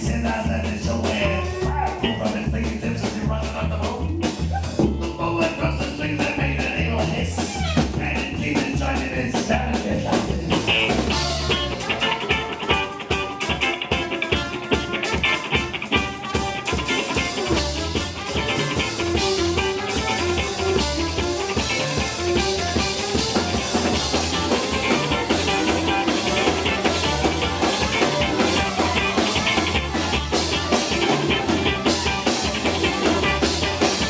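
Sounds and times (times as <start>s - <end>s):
man singing: 0.0s - 14.4s, 19.0s - 34.0s
live band playing swing-rock: 0.0s - 34.0s
fast fiddle and guitar break: 4.6s - 34.0s.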